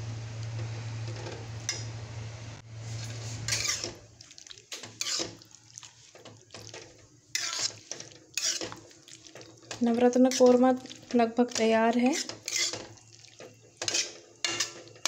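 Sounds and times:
low hum with hiss: 0.0 - 4.2
metal spatula scraping a pan: 2.8 - 4.0, 4.7 - 15.0
spatula clinking against pan: 13.8 - 15.0.

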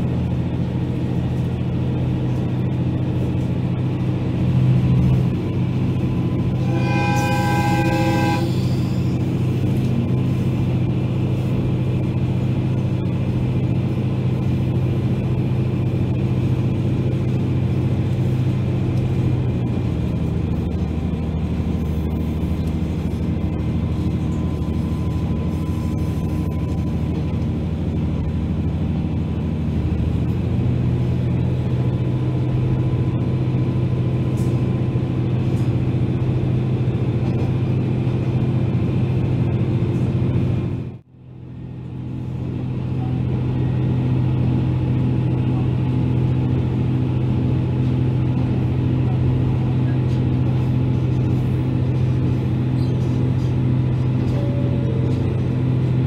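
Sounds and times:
diesel engine drone: 0.0 - 56.0.

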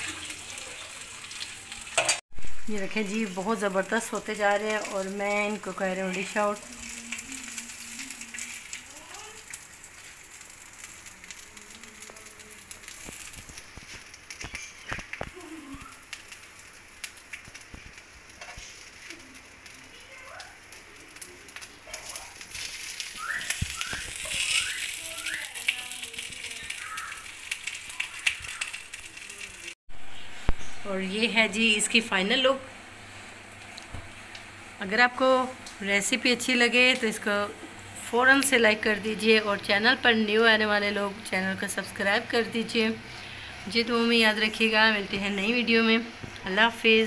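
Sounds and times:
steaks sizzling: 0.0 - 47.0
bird chirps: 23.2 - 25.6, 26.5 - 27.3.

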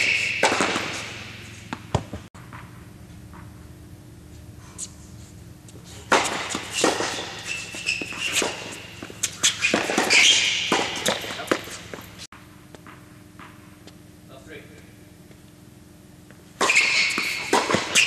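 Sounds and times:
sneakers squeaking on court: 0.0 - 2.8, 5.6 - 14.0, 16.6 - 18.0
ball bouncing: 0.0 - 3.7, 16.6 - 18.0
racket hitting tennis ball: 0.0 - 3.7, 6.0 - 13.6, 16.6 - 18.0.

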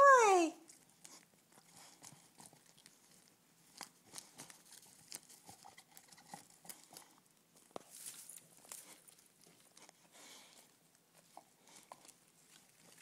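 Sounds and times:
wrapping paper crinkling and tearing: 7.8 - 9.8.

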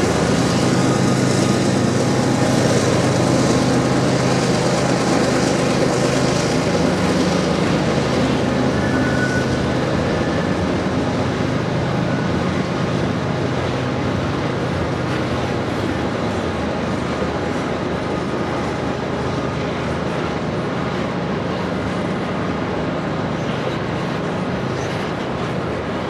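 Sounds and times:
diesel locomotive drone: 0.0 - 26.0
train wheels rumbling: 0.0 - 26.0
faint squeal: 8.6 - 10.7.

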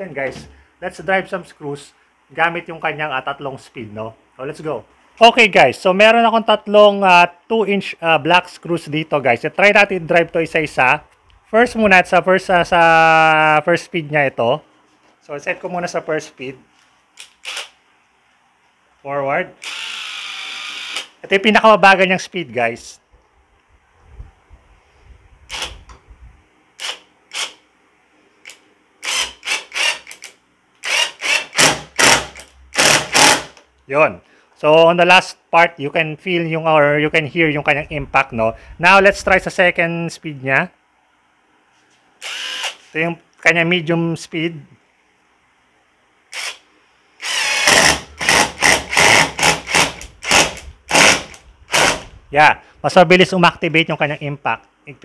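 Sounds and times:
impact driver hammering: 30.9 - 33.6, 47.3 - 52.0
impact driver motor hum: 47.2 - 52.0.

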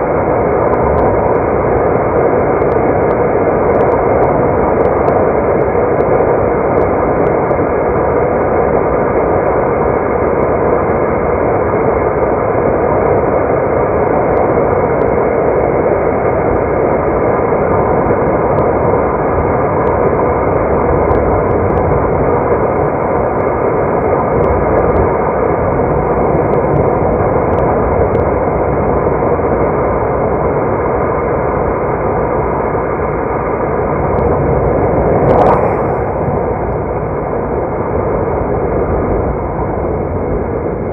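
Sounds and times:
car interior road noise: 19.8 - 30.6, 31.5 - 40.9.

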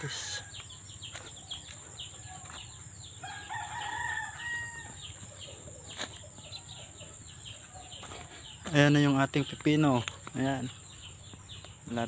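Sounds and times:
small birds chirping: 0.0 - 12.0
rooster crowing: 3.2 - 5.2.

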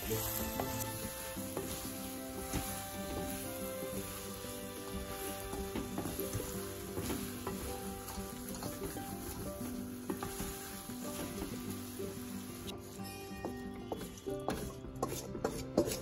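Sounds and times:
wooden spatula scraping pan: 0.0 - 12.8
meat sizzling in oil: 0.0 - 13.2.

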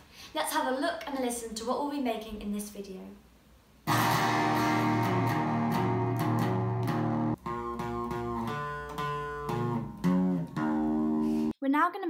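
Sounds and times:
clean electric guitar: 3.9 - 11.5.

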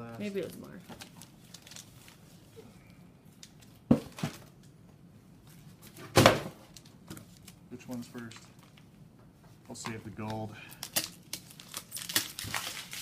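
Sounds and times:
packages rustling: 0.2 - 2.5, 9.7 - 13.0.

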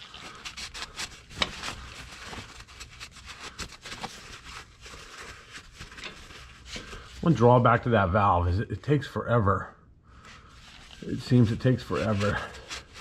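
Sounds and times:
towel rubbing and crumpling: 0.0 - 7.6, 10.3 - 13.0.

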